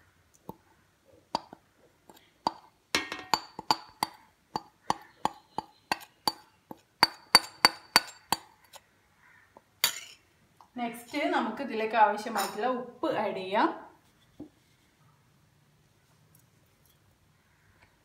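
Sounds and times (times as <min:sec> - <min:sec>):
metal spoon tapping glass and steel: 0:02.5 - 0:08.5.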